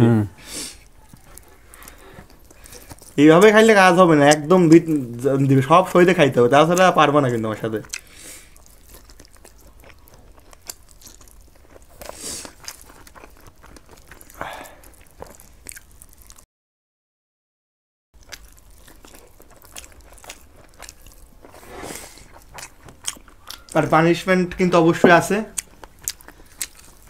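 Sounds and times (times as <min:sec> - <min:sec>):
person chewing food: 0:00.4 - 0:03.6, 0:06.7 - 0:16.4, 0:18.2 - 0:23.8, 0:25.0 - 0:27.0.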